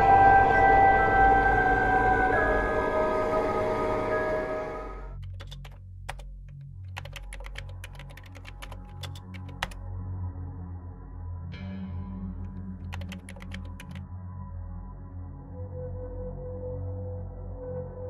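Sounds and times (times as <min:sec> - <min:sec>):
low steady drone: 0:00.0 - 0:05.2
title music: 0:00.0 - 0:05.2
laptop keyboard typing: 0:05.2 - 0:09.8, 0:12.8 - 0:14.0.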